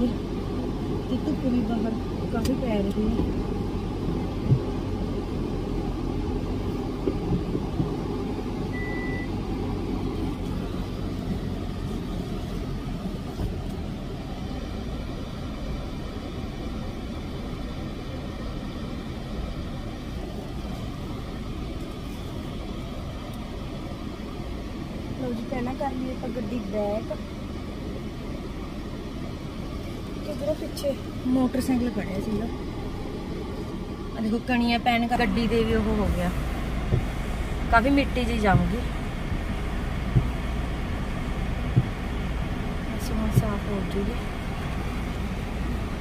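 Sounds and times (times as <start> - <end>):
car cabin engine rumble: 0.0 - 46.0
short high beep: 8.7 - 9.3.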